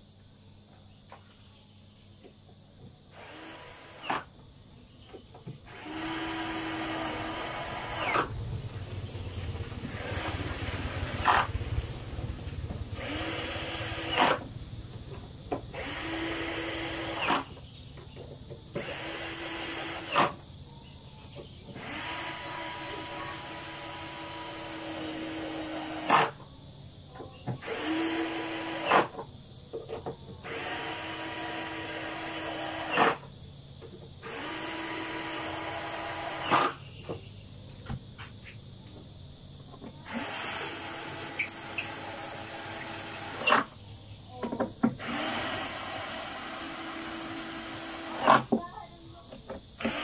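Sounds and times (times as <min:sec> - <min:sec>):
cordless drill motor whine: 0:03.1 - 0:04.3, 0:05.7 - 0:09.2, 0:09.8 - 0:11.5, 0:12.7 - 0:14.9, 0:15.5 - 0:17.6, 0:18.7 - 0:20.4, 0:21.5 - 0:26.4, 0:27.6 - 0:29.2, 0:30.4 - 0:33.3, 0:34.2 - 0:36.8, 0:40.0 - 0:43.8, 0:44.8 - 0:48.5, 0:49.7 - 0:50.0.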